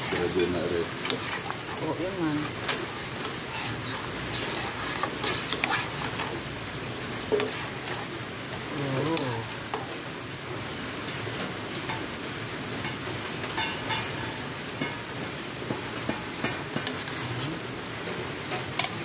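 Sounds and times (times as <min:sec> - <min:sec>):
spoon clinking and scraping pot: 0:00.0 - 0:06.5, 0:07.2 - 0:08.2, 0:12.8 - 0:17.6, 0:18.5 - 0:19.0.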